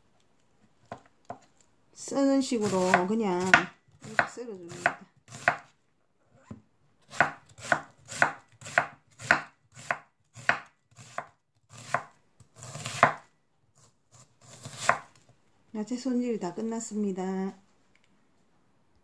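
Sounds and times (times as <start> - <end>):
knife chopping on a wooden board: 2.6 - 5.7, 7.1 - 13.3, 14.4 - 15.1.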